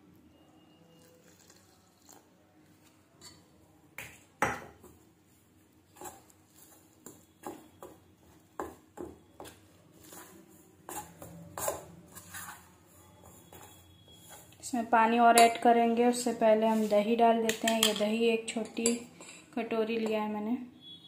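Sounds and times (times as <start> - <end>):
spoon clinking and scraping pot: 3.2 - 3.5, 8.6 - 14.7, 15.3 - 16.9, 17.5 - 20.1.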